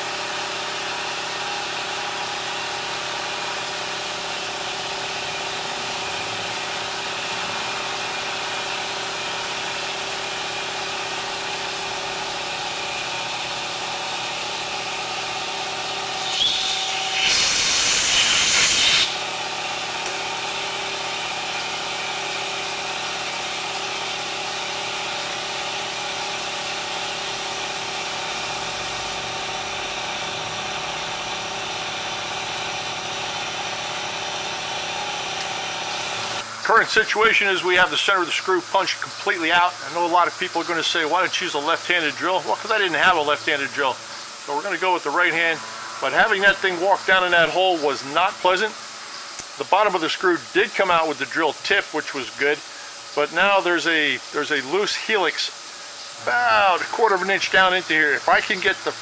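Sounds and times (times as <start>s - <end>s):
shop machinery humming: 0.0s - 59.0s
loud hiss: 16.1s - 19.2s, 42.9s - 59.0s.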